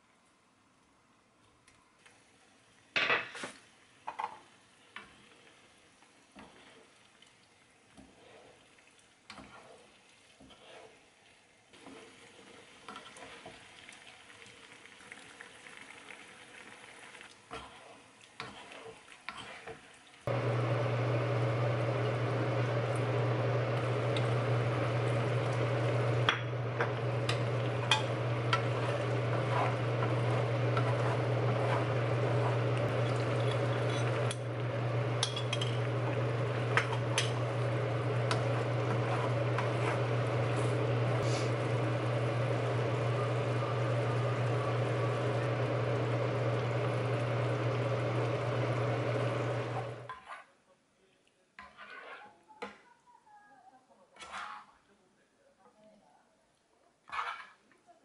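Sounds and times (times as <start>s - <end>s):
spatula scraping a pan: 6.4s - 6.9s, 8.0s - 8.6s, 9.3s - 11.1s, 11.8s - 13.6s, 17.5s - 19.8s, 26.8s - 34.4s, 35.2s - 41.6s, 50.1s - 50.5s, 51.6s - 52.4s, 54.2s - 54.8s, 57.1s - 57.6s
sauce simmering hiss: 20.3s - 49.8s.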